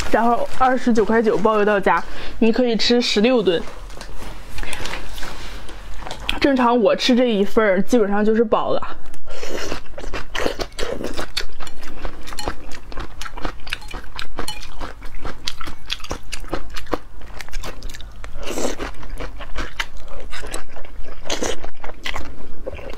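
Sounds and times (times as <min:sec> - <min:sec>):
chewing: 0:03.7 - 0:06.4, 0:09.2 - 0:22.9.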